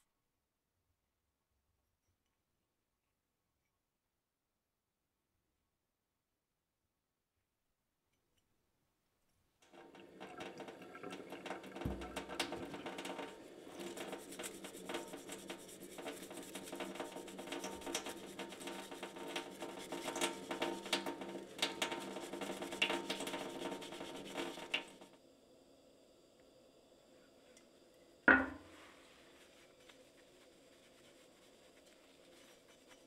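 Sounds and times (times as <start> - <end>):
tap water running into sink: 9.7 - 25.0
brush scrubbing metal: 11.8 - 25.0, 28.9 - 33.0.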